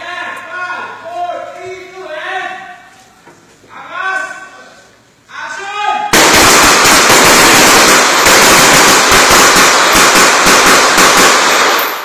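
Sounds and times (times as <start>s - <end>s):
loud dense crackling: 6.1s - 12.0s.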